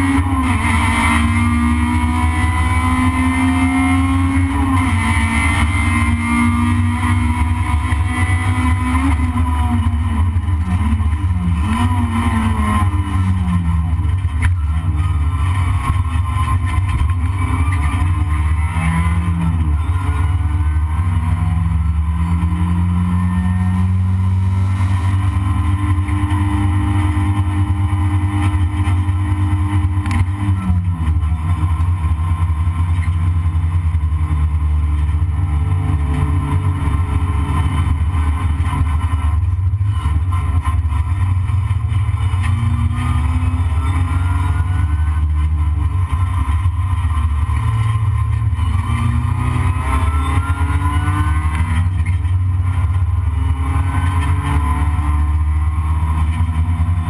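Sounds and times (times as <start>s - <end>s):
race car engine rumbling: 0.0s - 57.0s.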